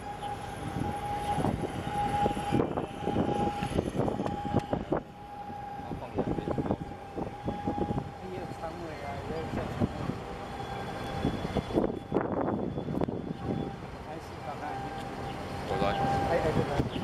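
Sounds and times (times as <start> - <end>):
ship machinery whine: 0.0 - 17.0
surging rumble: 0.0 - 17.0.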